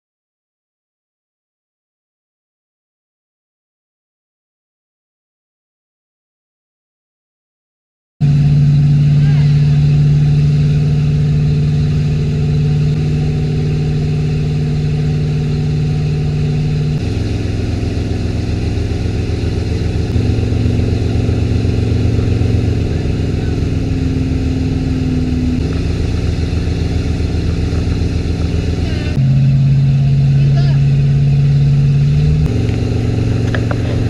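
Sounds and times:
boat engine running: 0:08.2 - 0:34.0
water churning: 0:09.1 - 0:34.0.

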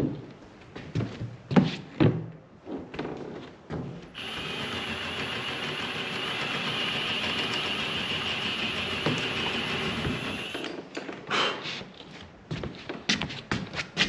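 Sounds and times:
cordless drill drilling wood: 0:04.1 - 0:10.8.

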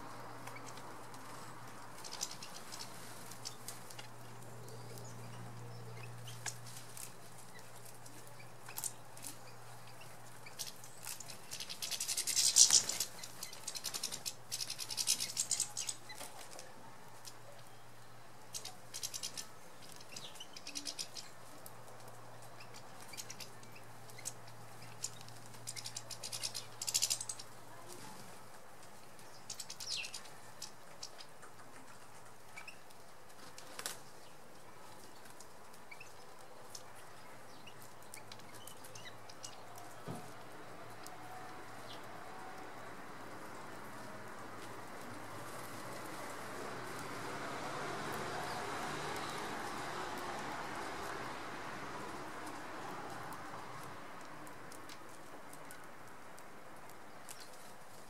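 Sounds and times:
birds chirping: 0:00.0 - 0:46.3
wing flutter: 0:00.1 - 0:17.6, 0:18.4 - 0:42.6.

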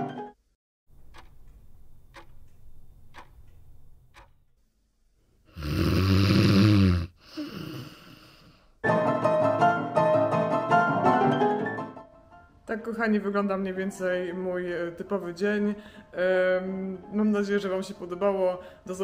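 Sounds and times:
clock ticking: 0:00.9 - 0:04.6
person snoring: 0:05.5 - 0:08.8.

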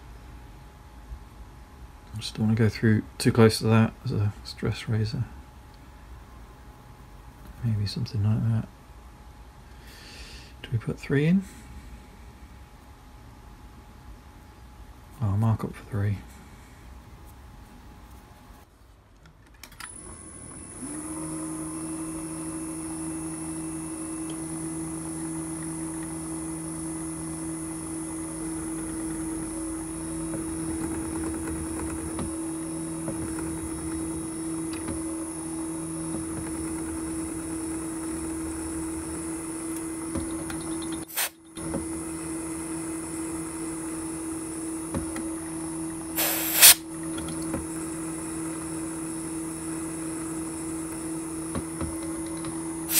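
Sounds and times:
drill press motor whining: 0:19.8 - 0:52.9.

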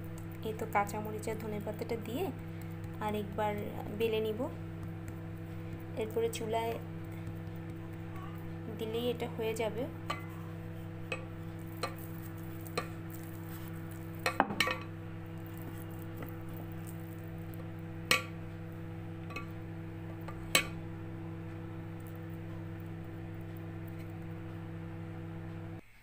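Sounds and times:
rolling pin working dough: 0:00.0 - 0:25.8
steady low hum: 0:00.0 - 0:26.0
rolling pin knocking on board: 0:14.3 - 0:14.8.

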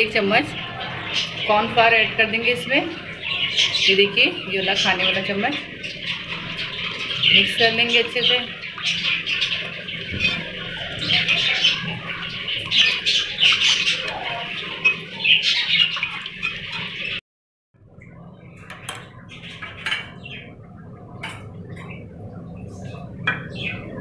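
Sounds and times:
small birds chirping: 0:00.0 - 0:17.2, 0:18.0 - 0:24.0
low steady hum: 0:17.8 - 0:24.0.

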